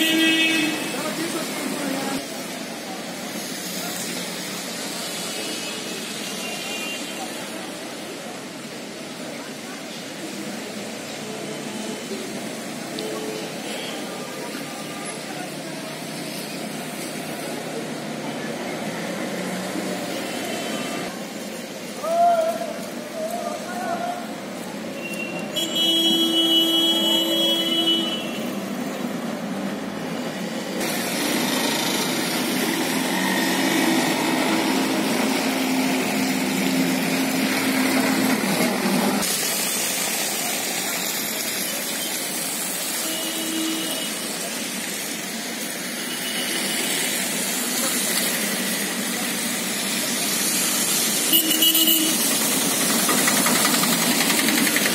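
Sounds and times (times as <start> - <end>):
car horn: 0.0 - 1.0, 25.0 - 28.6, 43.0 - 44.2, 51.3 - 52.3
passing vehicles and engines: 0.0 - 43.0, 44.2 - 54.9.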